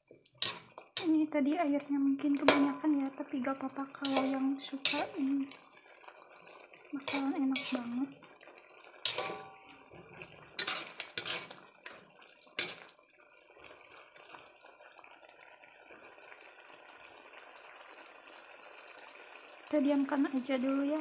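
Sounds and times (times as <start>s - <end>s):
sauce simmering: 0.0s - 21.0s
metal spatula scraping a wok: 0.1s - 1.2s, 2.4s - 2.9s, 4.0s - 5.5s, 7.0s - 8.1s, 9.0s - 12.9s.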